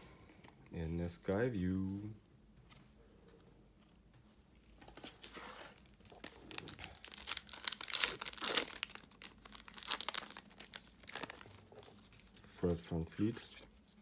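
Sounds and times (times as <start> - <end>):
plastic wrapper tearing and crinkling: 4.9 - 12.4.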